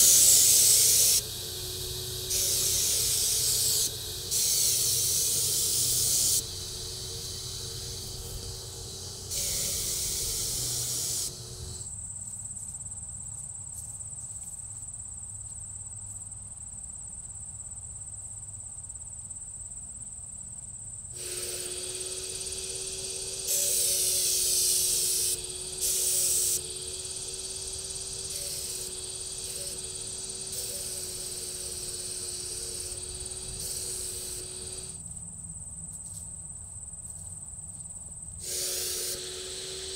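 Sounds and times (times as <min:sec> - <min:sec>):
spray gun hissing: 0:00.0 - 0:11.9, 0:21.2 - 0:35.0, 0:38.4 - 0:39.9
turbine hum: 0:00.0 - 0:11.9, 0:21.2 - 0:35.0, 0:38.4 - 0:39.9.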